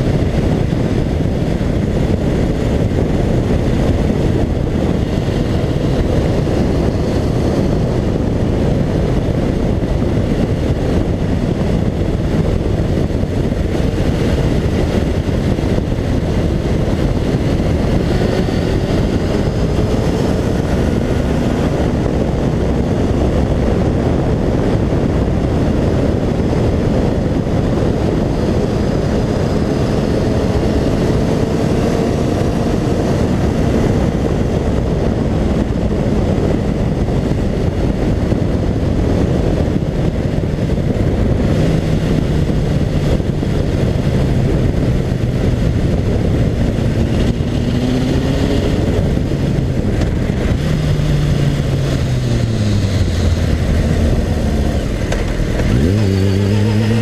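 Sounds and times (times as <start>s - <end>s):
motorcycle engine: 0.0s - 57.0s
wind and road noise: 0.0s - 57.0s.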